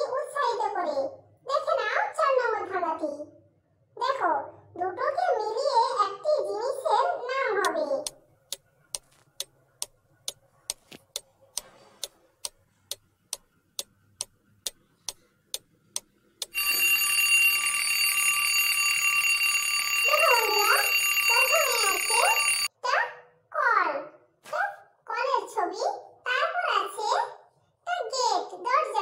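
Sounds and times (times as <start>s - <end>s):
clock ticking: 7.6s - 18.4s
alarm clock bell ringing: 16.5s - 22.7s.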